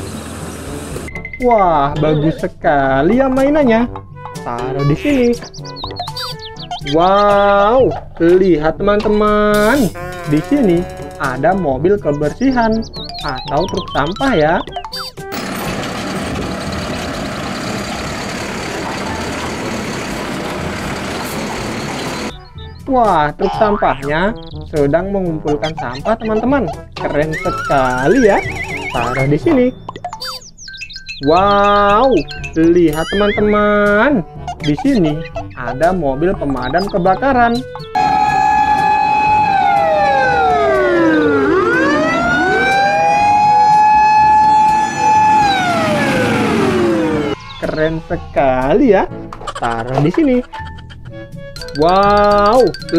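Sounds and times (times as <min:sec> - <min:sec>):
garbage truck diesel engine: 0:00.0 - 0:01.2, 0:15.2 - 0:22.4, 0:38.0 - 0:47.4
truck arm lifting trash cart: 0:15.4 - 0:22.3.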